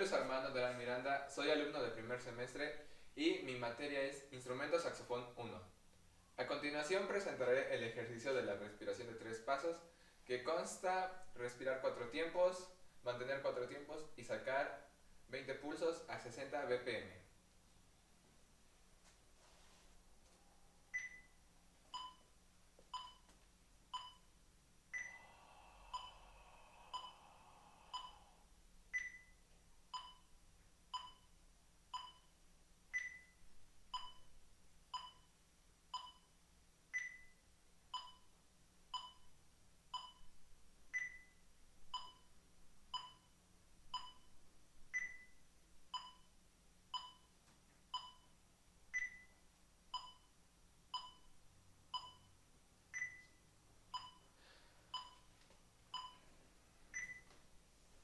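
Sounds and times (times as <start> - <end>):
long breath inhale: 25.0 - 28.5
metronome beeping: 54.0 - 54.3.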